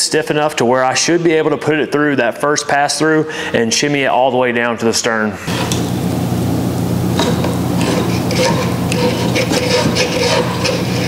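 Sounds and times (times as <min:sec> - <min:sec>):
steady low hum: 0:05.2 - 0:11.0
cord scratching inside hull: 0:07.2 - 0:11.0.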